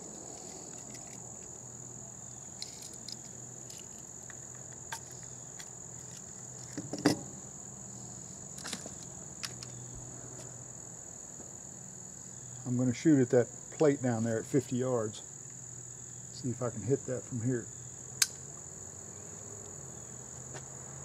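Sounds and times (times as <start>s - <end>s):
crickets chirping: 0.0s - 21.0s
clicks and knocks handling a gun: 0.3s - 1.6s, 2.5s - 7.3s, 8.6s - 9.8s.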